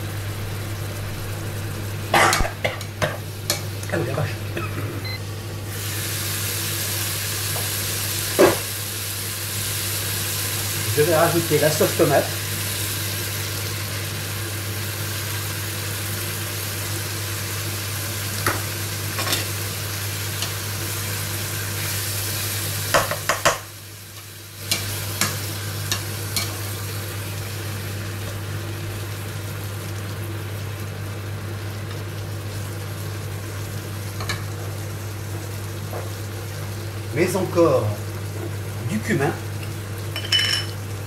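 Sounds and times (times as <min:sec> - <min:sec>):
steady low hum: 0:00.0 - 0:05.8
vegetables sizzling in a pot: 0:00.0 - 0:41.0.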